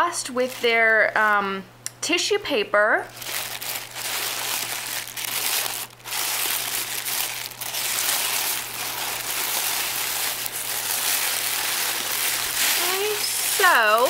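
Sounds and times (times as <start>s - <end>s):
tissue paper crinkling: 0.3s - 1.4s, 3.1s - 14.0s.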